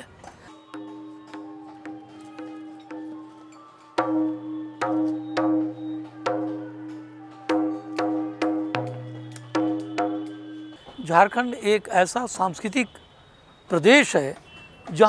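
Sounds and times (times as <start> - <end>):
pitched notes ringing: 0.4 - 12.3.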